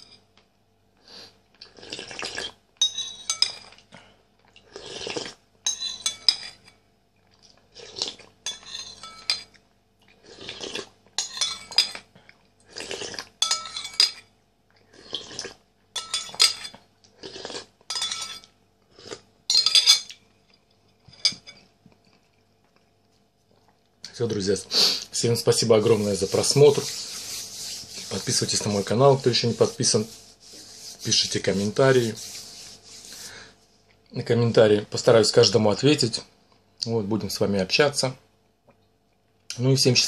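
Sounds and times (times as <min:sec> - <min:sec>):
soup slurping: 0:01.6 - 0:02.6, 0:04.6 - 0:05.4, 0:10.1 - 0:11.0, 0:12.7 - 0:13.3, 0:14.9 - 0:15.6
spoon clinking against ceramic bowl: 0:02.8 - 0:03.7, 0:05.6 - 0:06.8, 0:08.4 - 0:09.6, 0:11.2 - 0:12.0, 0:13.4 - 0:14.2, 0:16.0 - 0:16.8, 0:17.9 - 0:18.5, 0:19.5 - 0:20.2.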